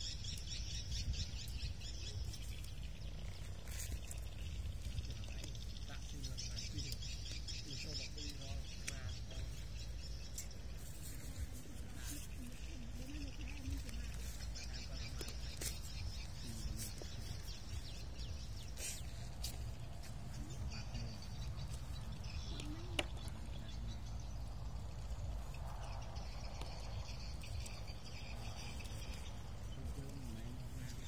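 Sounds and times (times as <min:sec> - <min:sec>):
steady low rumble: 0:00.0 - 0:31.0.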